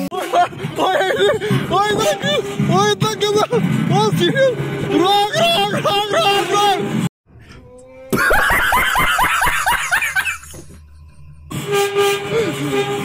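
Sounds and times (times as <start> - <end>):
man laughing loudly: 0.0 - 1.7, 5.2 - 6.5, 8.1 - 11.4, 12.3 - 12.9.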